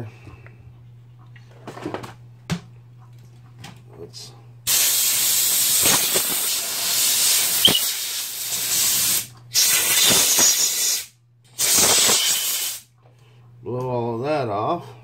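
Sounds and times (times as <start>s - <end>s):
compressed air blow gun hissing: 4.7s - 12.9s.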